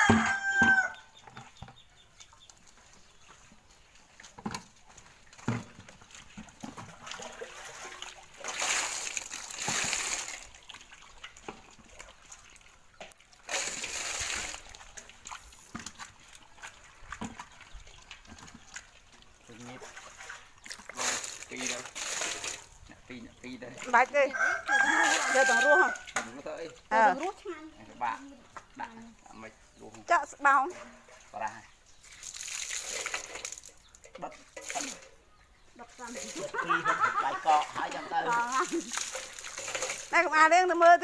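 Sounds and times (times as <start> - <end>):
rooster crowing: 0.0 - 1.1, 24.3 - 26.2
water sloshing in a basin: 0.0 - 41.0.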